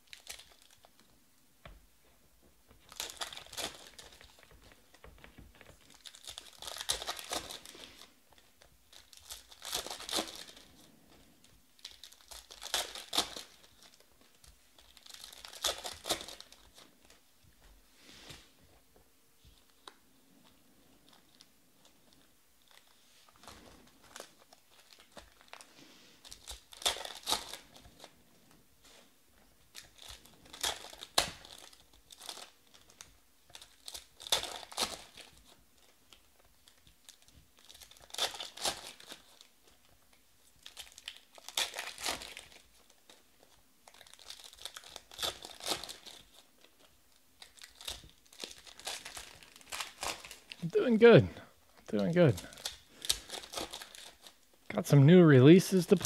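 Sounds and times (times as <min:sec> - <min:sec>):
foil wrappers tearing and crinkling: 0:00.0 - 0:01.0, 0:02.8 - 0:05.0, 0:05.6 - 0:11.2, 0:11.8 - 0:17.2, 0:21.1 - 0:28.2, 0:29.7 - 0:50.7, 0:51.7 - 0:54.7
quiet card handling: 0:42.2 - 0:56.0.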